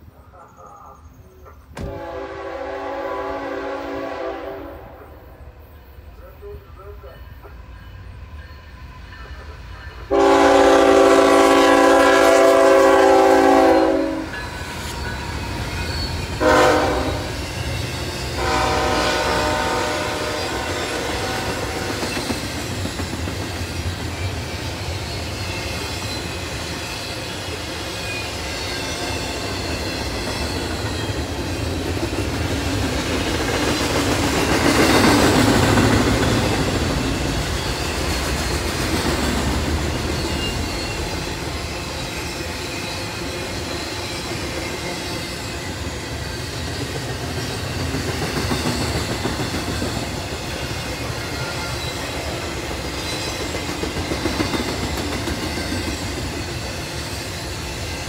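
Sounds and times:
train wheels rumbling on rails: 1.3s - 58.0s
locomotive air horn blasts: 1.8s - 5.0s, 10.1s - 14.4s, 16.4s - 17.4s, 18.4s - 21.9s.

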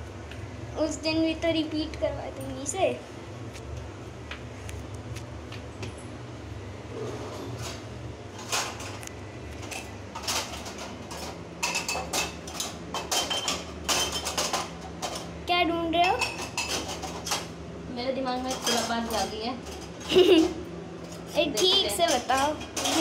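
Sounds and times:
steel dishes and utensils clinking: 9.6s - 15.3s, 16.0s - 17.5s, 18.4s - 23.0s.

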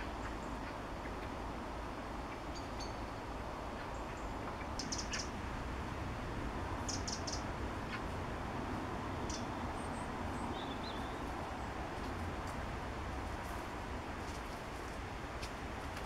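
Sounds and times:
low background rush: 0.0s - 16.0s
small bird chirping: 2.3s - 3.1s, 3.8s - 5.3s, 6.9s - 7.5s, 9.2s - 11.2s.

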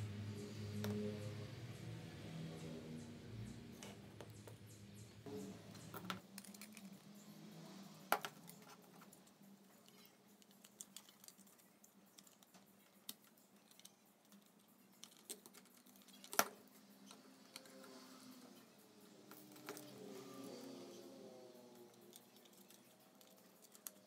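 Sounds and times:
plastic and metal parts clicking: 5.9s - 7.0s, 8.1s - 17.8s.

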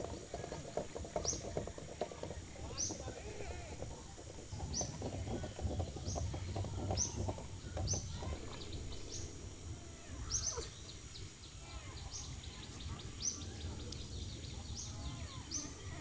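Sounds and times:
knocking and rustling: 0.0s - 9.0s.

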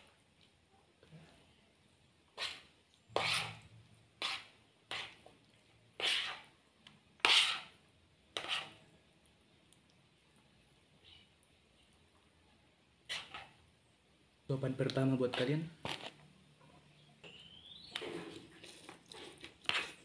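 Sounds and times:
fork scraping a plate: 2.4s - 5.3s, 6.0s - 6.5s, 7.2s - 7.8s, 8.4s - 8.8s, 13.1s - 13.6s, 15.3s - 16.2s, 17.8s - 20.0s.

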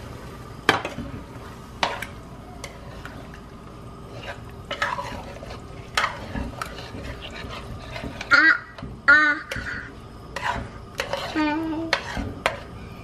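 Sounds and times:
spoon stirring thick sauce: 1.8s - 8.3s, 10.3s - 12.8s
spoon scraping pot: 4.0s - 8.8s, 9.4s - 12.9s.

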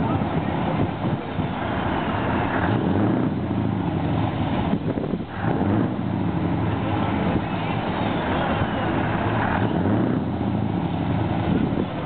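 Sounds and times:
truck diesel engine running: 0.0s - 12.0s.

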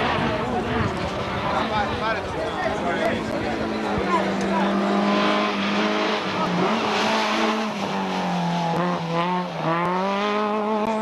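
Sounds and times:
rally car engine at high revs: 2.8s - 11.0s.

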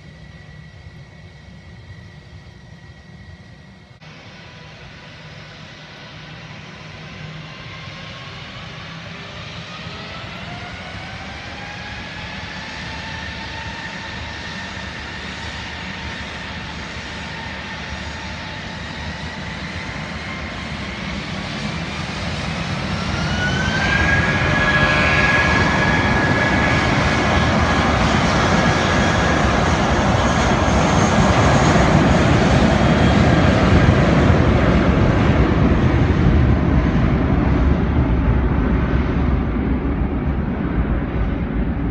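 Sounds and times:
jet engine roar: 0.0s - 41.9s
jet engines spooling up: 0.0s - 41.9s.

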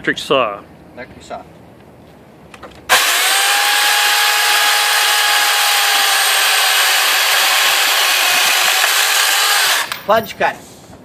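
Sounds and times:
electric chainsaw running: 2.9s - 10.1s.

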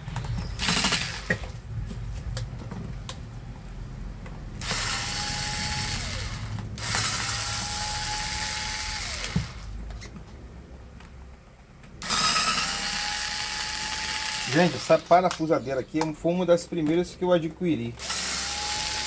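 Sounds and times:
cordless screwdriver motor whining: 0.4s - 1.4s, 4.6s - 9.7s, 12.0s - 15.1s, 18.0s - 19.0s.

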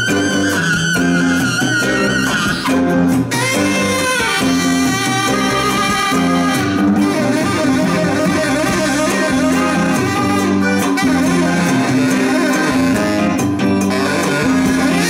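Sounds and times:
accordion: 0.0s - 15.0s
bass line: 0.0s - 15.0s
drums: 0.0s - 15.0s
saxophone playing: 0.0s - 15.0s.

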